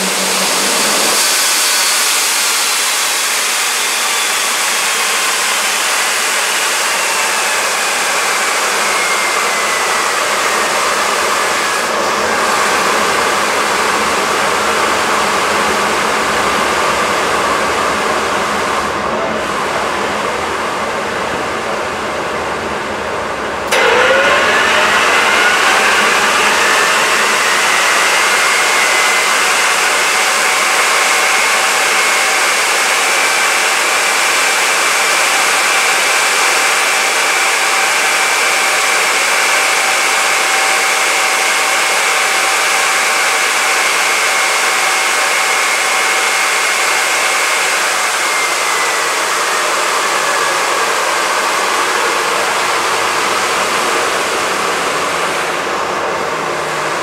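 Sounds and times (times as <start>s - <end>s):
high turbine whine: 0.0s - 57.0s
jet engine air rush: 0.0s - 57.0s.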